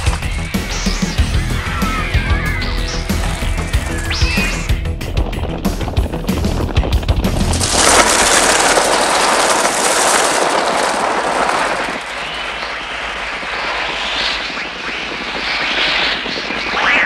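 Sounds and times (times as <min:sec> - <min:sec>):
flock of birds wings and cries: 0:00.0 - 0:04.8, 0:07.6 - 0:17.0
shrill bird screeches: 0:01.4 - 0:04.7.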